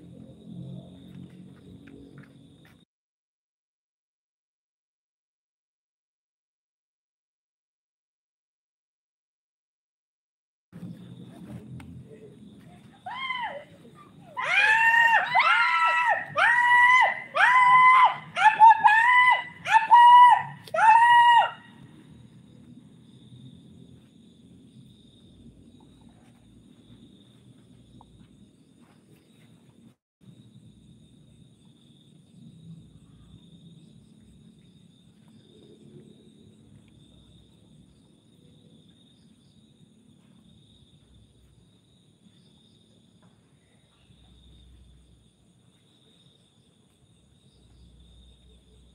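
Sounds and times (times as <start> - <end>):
night insects trilling: 12.0 - 48.9
high-pitched screaming: 13.0 - 21.8.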